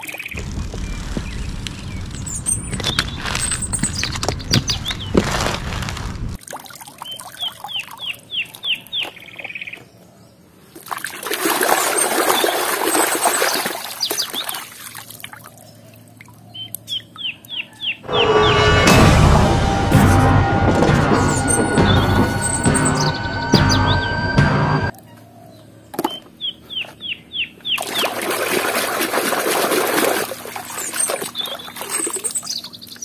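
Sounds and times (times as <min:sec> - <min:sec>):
bird chirping: 0:00.1 - 0:05.2
low rumbling with clicks: 0:00.3 - 0:06.4
water splashing in plastic tub: 0:27.8 - 0:32.2.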